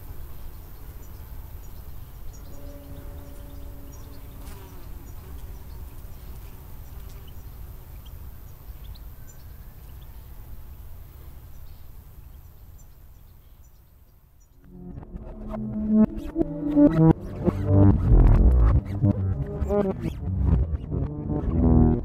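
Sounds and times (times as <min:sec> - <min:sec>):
bowed bass guitar note: 0:02.5 - 0:04.4, 0:14.6 - 0:22.0.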